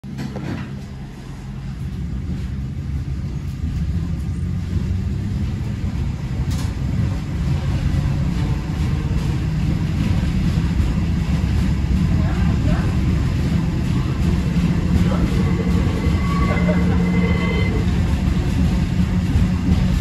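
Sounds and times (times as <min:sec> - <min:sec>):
tram rumbling: 0:00.0 - 0:20.0.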